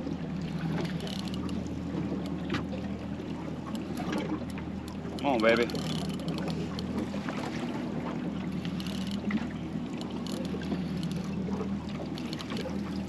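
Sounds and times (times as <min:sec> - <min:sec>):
boat engine idling: 0:00.0 - 0:13.0
light clicks: 0:03.7 - 0:07.0, 0:08.5 - 0:11.3, 0:12.1 - 0:13.0.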